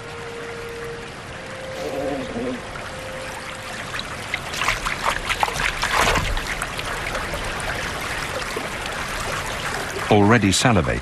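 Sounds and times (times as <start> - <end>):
rushing water of rapids: 0.0 - 11.0
loud water splashing: 3.0 - 10.3.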